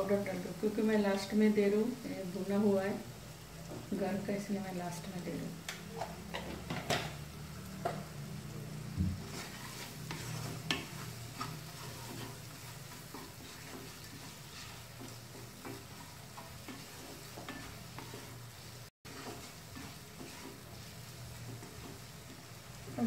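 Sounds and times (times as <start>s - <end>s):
light sizzle: 0.0s - 23.0s
spatula scraping a pan: 9.2s - 23.0s.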